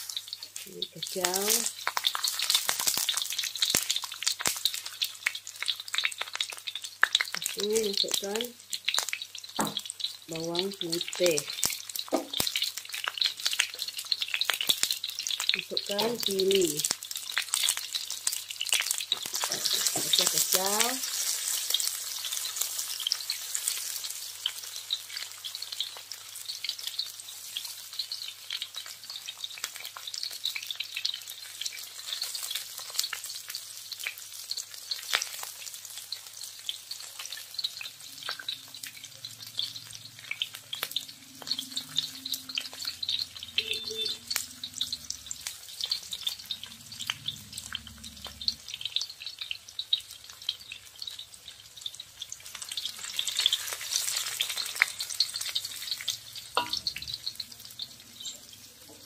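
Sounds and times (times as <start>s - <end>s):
vegetables sizzling in hot oil: 0.0s - 59.0s
spatula scraping and clicking on pan: 19.1s - 20.3s.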